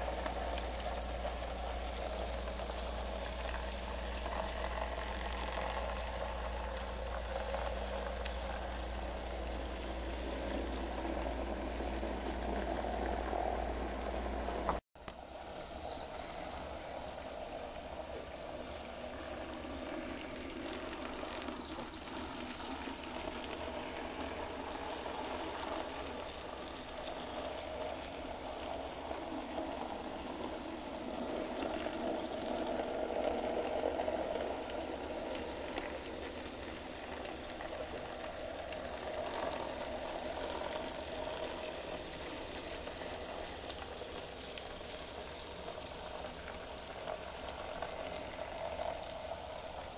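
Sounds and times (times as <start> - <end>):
model train motor whirring: 0.0 - 49.9.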